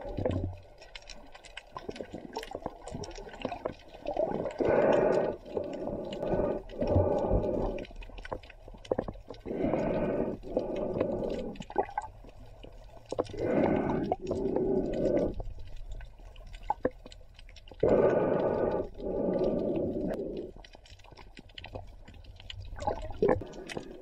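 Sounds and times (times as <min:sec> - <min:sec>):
faint water clicks: 0:00.0 - 0:24.0
breathing through a snorkel underwater: 0:04.0 - 0:08.1, 0:09.4 - 0:11.8, 0:13.2 - 0:15.8, 0:17.7 - 0:20.6, 0:23.3 - 0:24.0.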